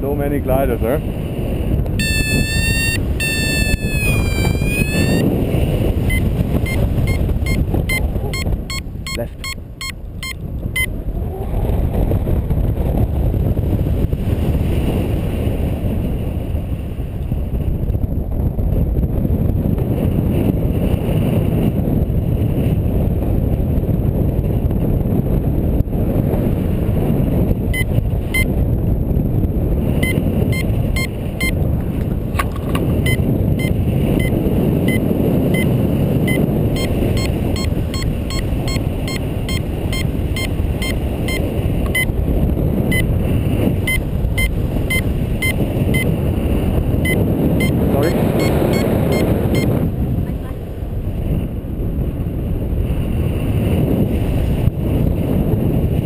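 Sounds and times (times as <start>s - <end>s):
wind rushing over microphone: 0.0s - 56.0s
variometer short beeps: 2.0s - 5.3s, 6.0s - 10.9s, 27.7s - 28.5s, 30.0s - 31.6s, 32.9s - 42.2s, 42.9s - 43.2s, 43.8s - 46.2s, 47.0s - 49.8s.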